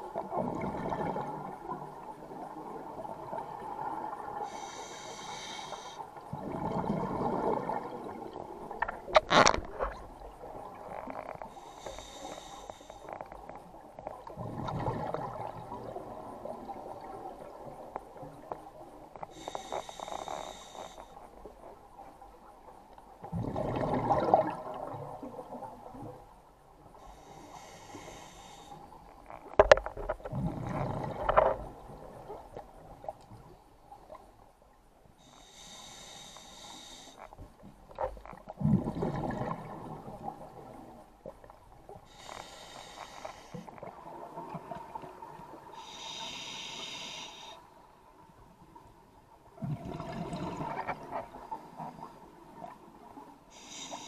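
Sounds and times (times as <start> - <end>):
regulator inhale hiss: 4.4 - 6.1, 11.5 - 13.2, 19.3 - 21.4, 26.9 - 29.1, 35.2 - 37.3, 42.0 - 43.8, 45.7 - 47.8, 53.5 - 54.0
bubbling gurgle exhale: 6.3 - 8.4, 14.3 - 17.2, 23.3 - 25.2, 30.3 - 32.2, 38.6 - 40.9, 49.6 - 51.5.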